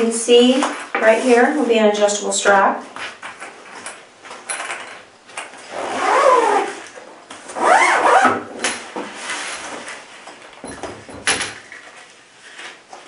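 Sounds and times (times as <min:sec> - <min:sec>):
rasping pulls on nylon case: 0:07.5 - 0:08.4.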